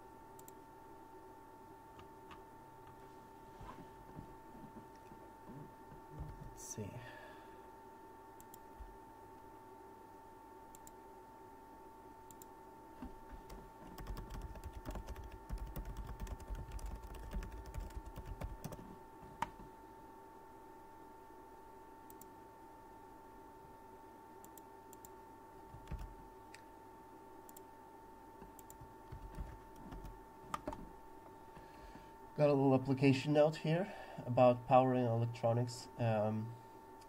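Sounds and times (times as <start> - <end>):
faint steady whine: 0.0 - 37.0
computer keyboard typing: 13.4 - 18.9, 25.7 - 26.2, 28.5 - 30.8.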